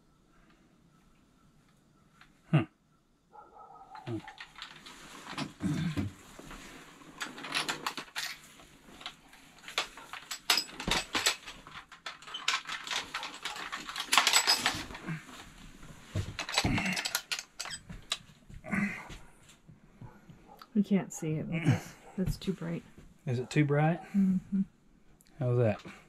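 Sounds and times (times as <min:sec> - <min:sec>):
fishing gear clinking and rattling: 0:03.6 - 0:18.3
metallic clatters: 0:07.2 - 0:15.1, 0:16.1 - 0:18.3.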